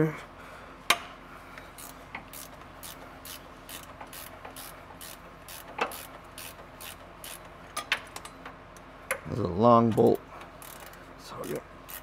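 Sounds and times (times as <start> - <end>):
ratchet wrench clicking: 1.8 - 7.5, 10.6 - 12.0.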